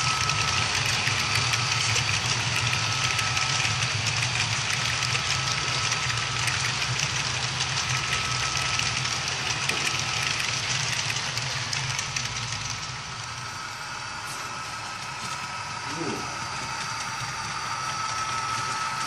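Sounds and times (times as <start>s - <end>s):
model train wheels rattling on rail: 0.0s - 13.5s
low hum: 0.0s - 19.0s.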